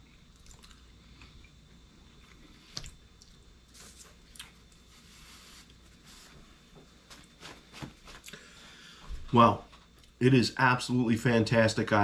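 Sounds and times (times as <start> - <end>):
faint chewing: 0.0 - 4.9.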